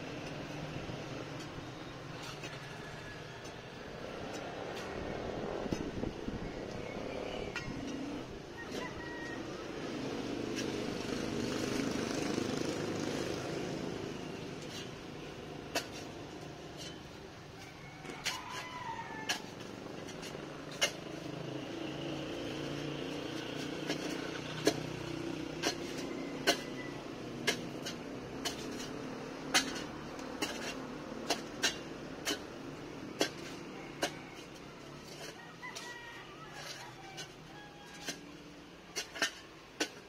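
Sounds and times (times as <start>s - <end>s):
vehicle engine humming: 0.0s - 40.0s
rooster crowing: 2.5s - 3.6s, 8.5s - 10.0s, 17.6s - 19.6s, 25.8s - 27.1s, 33.4s - 38.3s.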